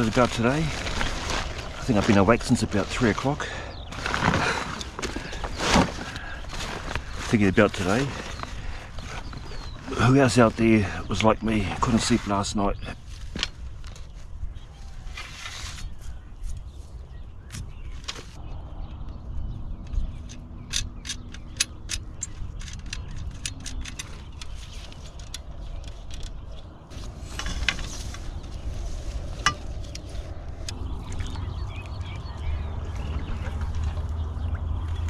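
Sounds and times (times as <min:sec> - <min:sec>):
rustling: 0:00.0 - 0:10.6, 0:11.2 - 0:17.0, 0:22.7 - 0:31.2
steady low rumble: 0:18.4 - 0:35.0.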